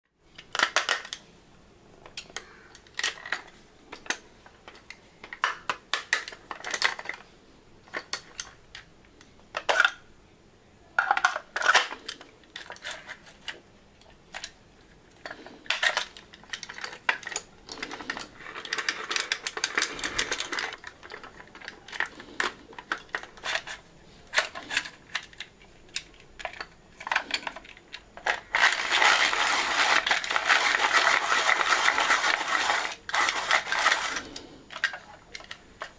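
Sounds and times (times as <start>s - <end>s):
pencil sharpener grinding: 28.3s - 34.5s.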